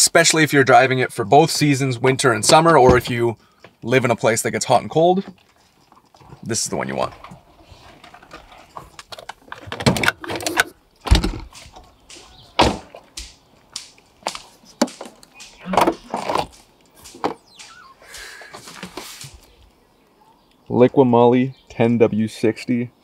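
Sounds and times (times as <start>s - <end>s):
rummaging in car trunk: 7.1s - 11.8s, 14.8s - 16.6s.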